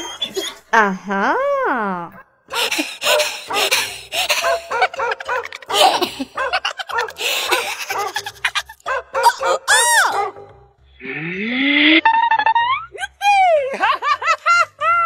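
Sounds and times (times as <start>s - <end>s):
person giggling: 2.5s - 9.7s.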